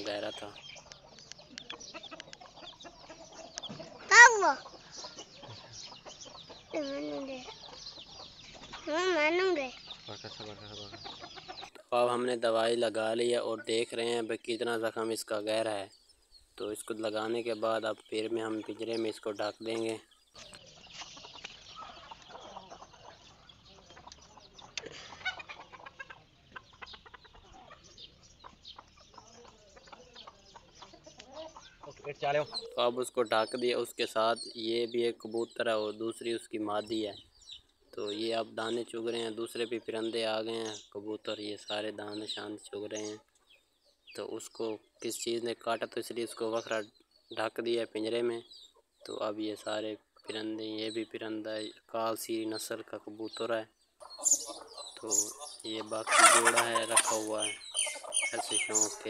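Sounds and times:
chicken calling: 0:00.0 - 0:16.0, 0:16.7 - 0:33.7, 0:53.9 - 0:59.0.

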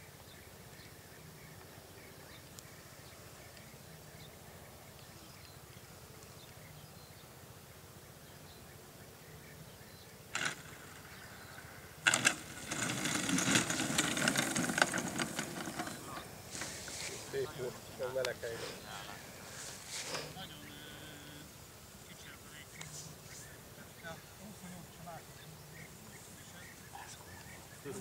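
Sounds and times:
wheels rolling on grass: 0:09.7 - 0:28.0
model airplane engine: 0:10.4 - 0:17.3.

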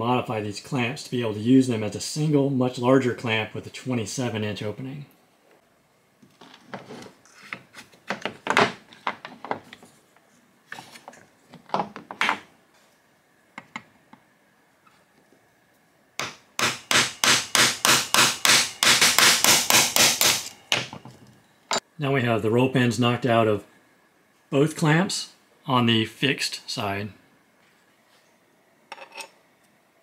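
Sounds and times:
hammer striking steel punch: 0:16.2 - 0:20.9.

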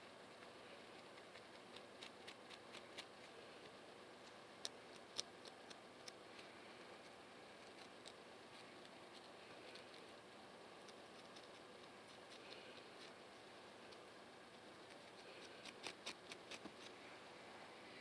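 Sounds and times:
comb scratching on scalp: 0:10.8 - 0:13.2, 0:14.8 - 0:17.0.

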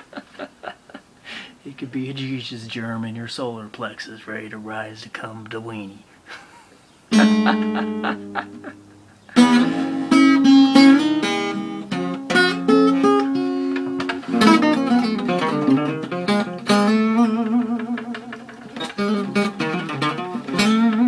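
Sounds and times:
acoustic guitar playing: 0:07.1 - 0:21.0.

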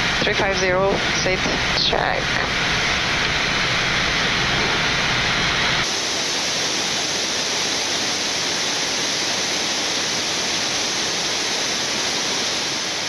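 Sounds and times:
low rumble: 0:00.0 - 0:05.9
rushing airflow and air conditioning: 0:00.0 - 0:13.0.

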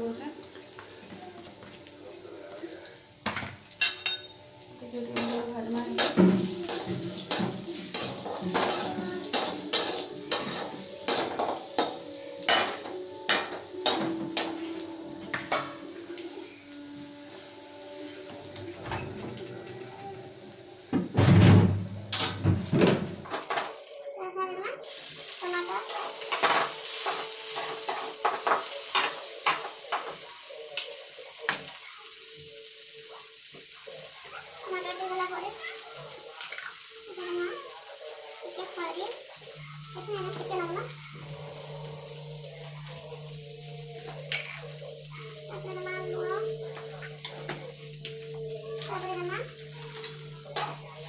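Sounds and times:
onions sizzling: 0:00.0 - 0:51.0
metal spoon scraping metal pan: 0:05.2 - 0:14.5, 0:25.9 - 0:30.1, 0:48.7 - 0:51.0.

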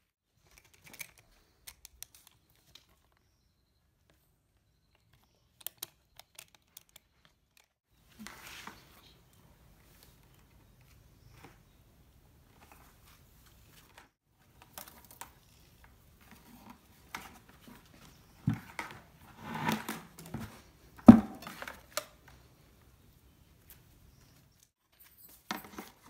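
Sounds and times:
hands handling plastic bucket: 0:16.2 - 0:22.4.

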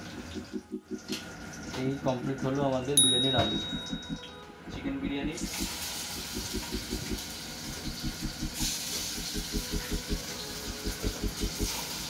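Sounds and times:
low rhythmic pulsing: 0:00.0 - 0:12.0
chicken sizzling in hot oil: 0:05.4 - 0:12.0.

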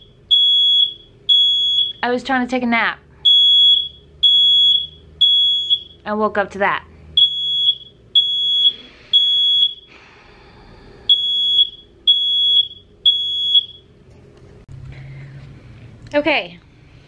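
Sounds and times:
smoke alarm beeping: 0:00.0 - 0:02.1, 0:03.2 - 0:06.0, 0:07.2 - 0:10.0, 0:11.1 - 0:13.9.

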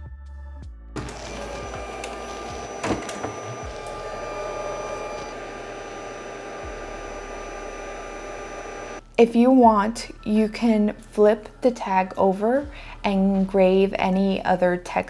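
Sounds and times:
fans whirring: 0:01.0 - 0:09.0.

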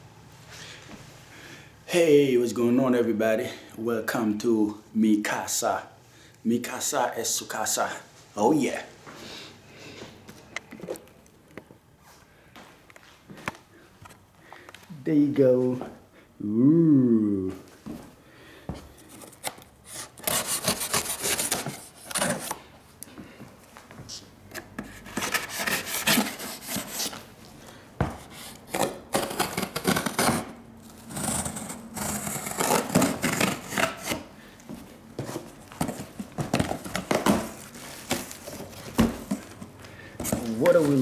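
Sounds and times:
knife cutting tape and cardboard: 0:19.1 - 0:22.6, 0:24.5 - 0:27.2, 0:28.2 - 0:34.3.

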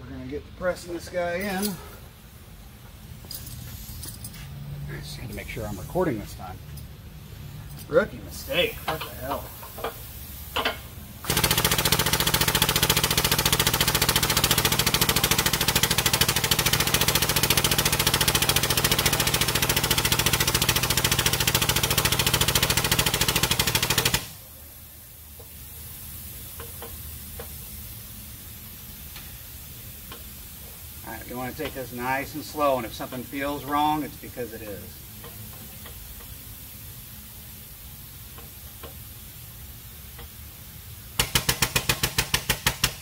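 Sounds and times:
air pump chattering: 0:08.5 - 0:24.4, 0:41.2 - 0:43.0.

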